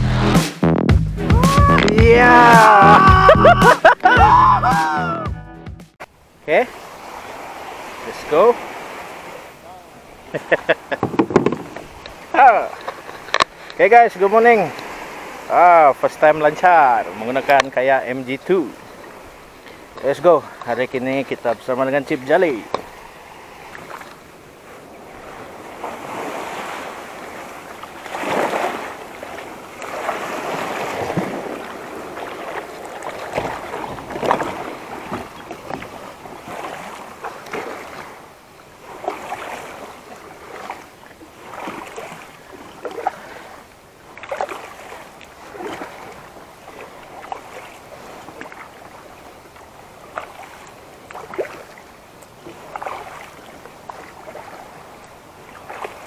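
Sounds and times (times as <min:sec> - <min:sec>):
water splashing around kayak: 0:01.3 - 0:05.2, 0:06.0 - 0:56.0.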